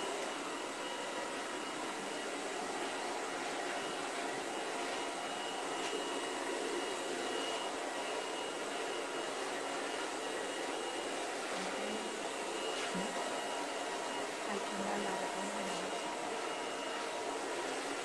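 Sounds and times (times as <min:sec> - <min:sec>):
hair dryer blowing: 0:00.0 - 0:18.0
hair being brushed: 0:04.7 - 0:08.5, 0:11.1 - 0:14.2, 0:15.1 - 0:18.0.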